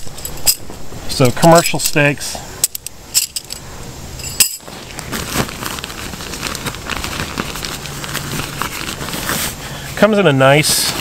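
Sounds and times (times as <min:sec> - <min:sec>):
tent stakes clinking: 0:00.0 - 0:09.6
nylon sack rustling: 0:04.3 - 0:11.0.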